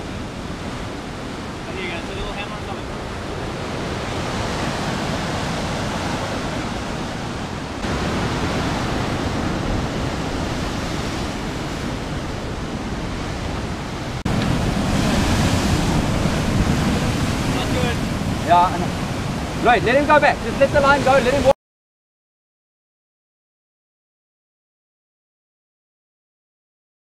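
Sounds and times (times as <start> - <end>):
wind on microphone: 0.0 - 21.5
surf breaking against rocks: 0.1 - 21.5.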